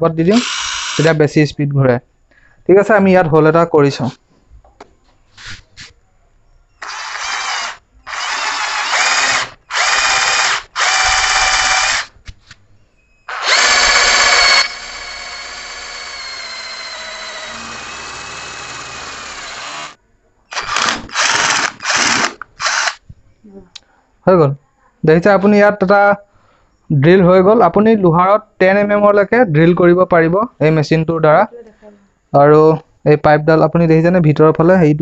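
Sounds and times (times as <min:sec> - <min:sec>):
cordless drill drilling into metal: 0:00.3 - 0:01.2, 0:06.8 - 0:12.1, 0:13.3 - 0:23.0.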